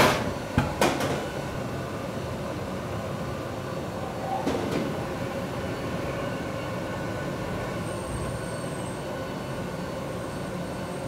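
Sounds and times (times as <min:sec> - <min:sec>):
faint high whistle: 0:07.8 - 0:11.0.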